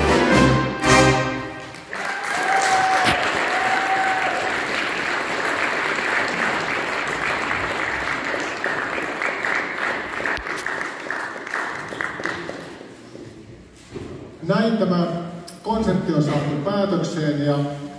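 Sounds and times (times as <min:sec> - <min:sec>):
accordion orchestra chords: 0:00.0 - 0:01.7
audience applause: 0:01.6 - 0:12.8.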